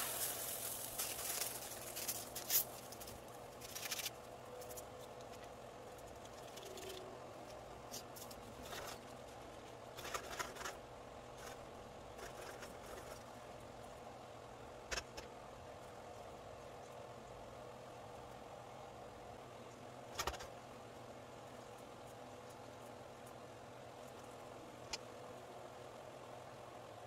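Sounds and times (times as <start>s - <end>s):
seasoning packet tearing: 0.0s - 4.1s
faint steady hum: 0.0s - 27.0s.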